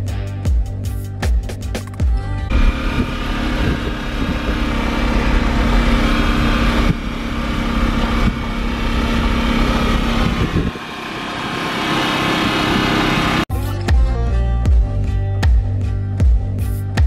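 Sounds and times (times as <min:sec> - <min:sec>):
road and wind noise: 0:01.8 - 0:13.5
engine droning: 0:02.0 - 0:13.5.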